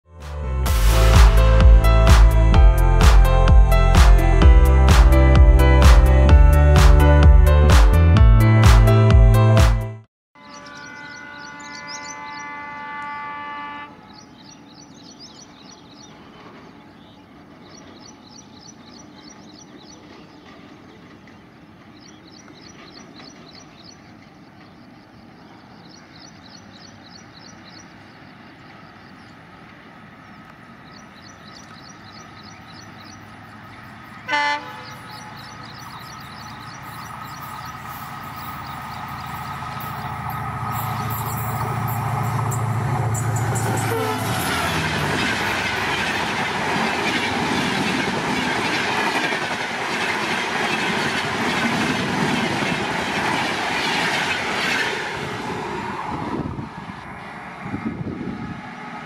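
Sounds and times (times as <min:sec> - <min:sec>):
music: 0:00.1 - 0:10.1
locomotive horn blast: 0:10.4 - 0:14.3, 0:34.2 - 0:35.7, 0:37.4 - 0:46.1
birds chirping: 0:10.4 - 0:48.5
diesel locomotive engine: 0:10.4 - 0:59.0
train wheels on rails: 0:14.2 - 0:59.0.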